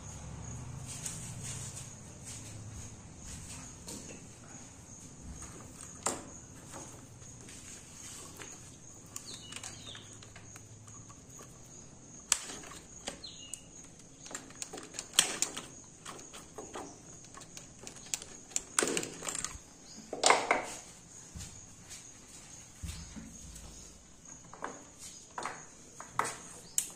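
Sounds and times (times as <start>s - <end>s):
tools clicking and knocking: 8.2s - 20.8s.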